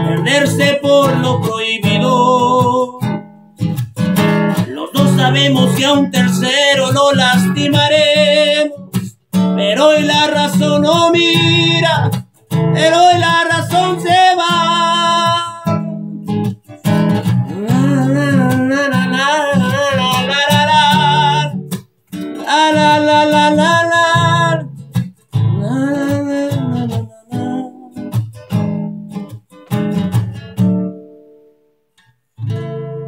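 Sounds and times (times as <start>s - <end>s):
man singing: 0.0s - 3.2s, 4.5s - 16.3s, 17.3s - 28.2s
strummed classical guitar: 0.0s - 33.0s.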